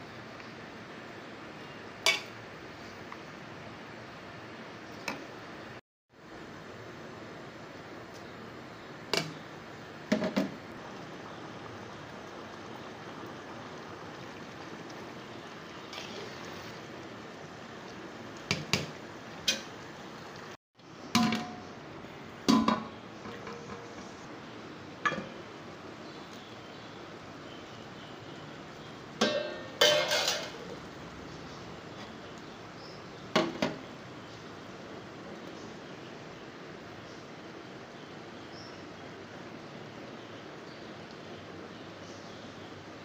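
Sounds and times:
spoon clinking against metal pot: 29.2 - 30.6.

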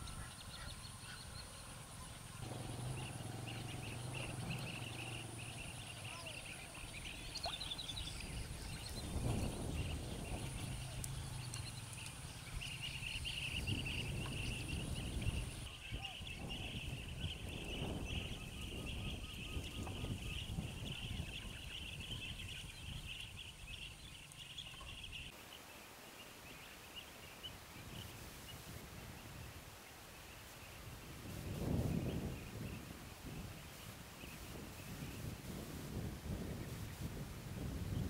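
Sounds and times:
high-pitched wildlife chirring: 0.0 - 17.2
low rumble: 1.3 - 15.7.

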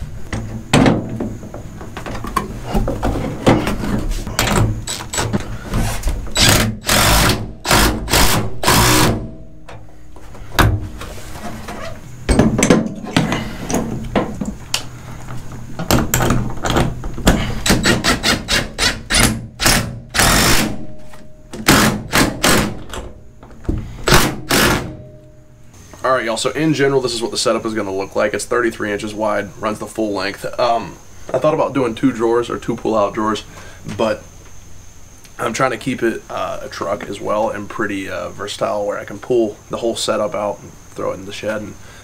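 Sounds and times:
impact driver hammering: 6.3 - 9.3, 17.3 - 20.8, 21.6 - 22.8, 24.1 - 25.0.

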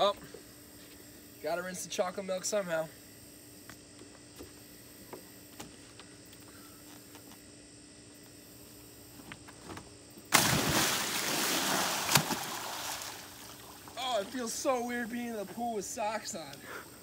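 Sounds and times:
steady low hum: 0.0 - 17.0
loud splash into pool: 10.3 - 13.9
churning water: 10.3 - 14.6.

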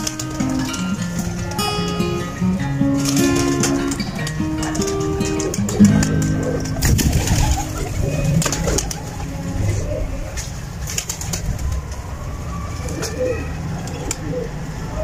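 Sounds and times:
pigeons cooing: 0.0 - 11.5
wings flapping: 3.0 - 12.0.

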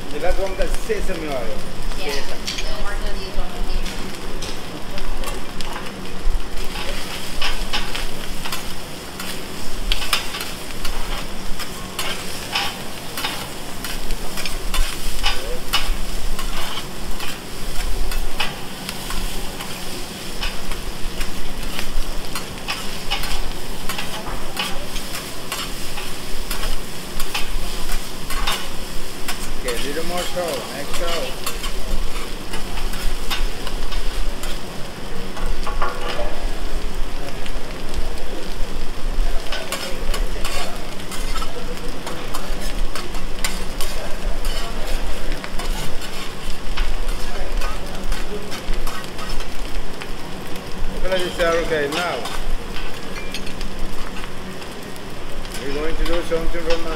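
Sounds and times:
food sizzling on a griddle: 0.0 - 56.9
metal spatulas scraping and tapping: 42.3 - 44.8.

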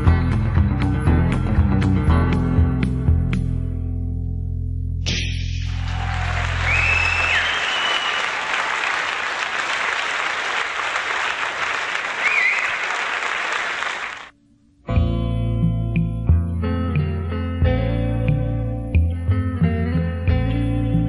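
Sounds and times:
guitar playing: 0.0 - 5.0, 14.9 - 21.0
audience applause: 5.7 - 14.3
short whistles: 6.6 - 8.4, 12.2 - 12.9.

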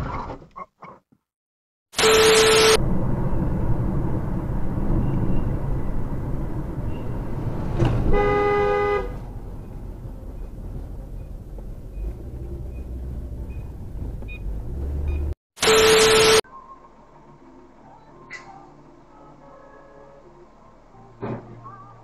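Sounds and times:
car horn honking: 2.0 - 2.8, 6.8 - 10.4
road and engine noise inside car: 2.3 - 15.4.

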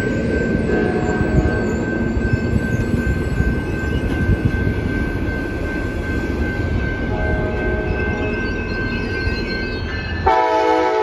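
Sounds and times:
diesel locomotive rumbling: 0.0 - 11.0
train wheels on rails: 0.0 - 11.0.

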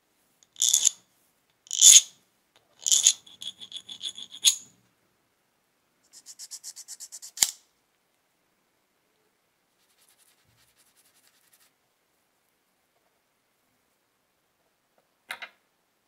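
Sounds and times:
hand file scraping brass: 2.8 - 4.6.

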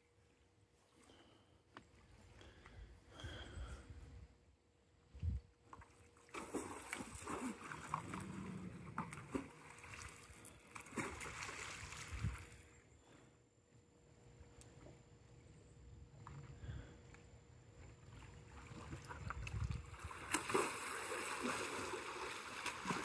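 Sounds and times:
water splashing and sloshing: 5.2 - 12.8, 17.7 - 23.0.

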